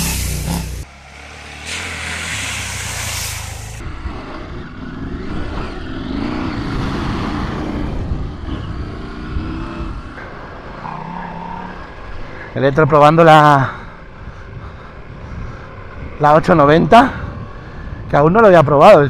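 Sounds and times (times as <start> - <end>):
water spray hissing: 0.0 - 3.8
motorcycle engine revving: 0.0 - 12.3.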